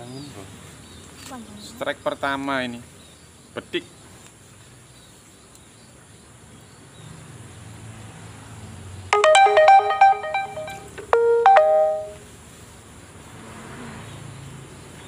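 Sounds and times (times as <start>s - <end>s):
electronic beeping ringtone melody: 9.2s - 12.2s.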